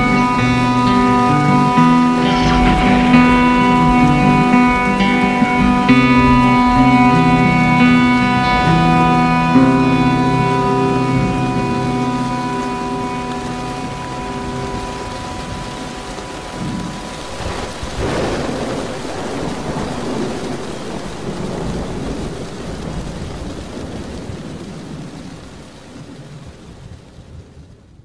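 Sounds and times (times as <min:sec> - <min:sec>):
held music notes: 0:00.0 - 0:20.6
steady rain falling: 0:00.0 - 0:28.0
thunder rumble: 0:00.0 - 0:28.0.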